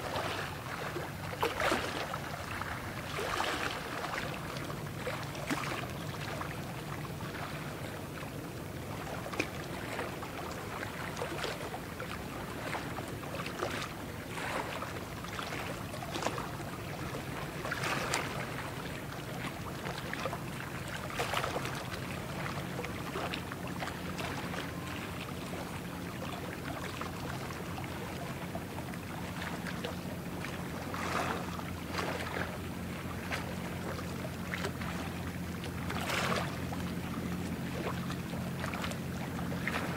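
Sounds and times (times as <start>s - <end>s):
low ship engine drone: 0.0s - 39.9s
bow wave rushing and splashing: 29.2s - 39.9s.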